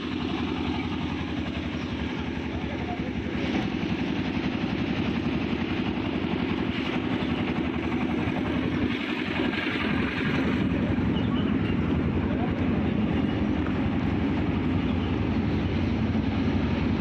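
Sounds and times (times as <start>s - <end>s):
bus diesel engine idling: 0.0s - 17.0s.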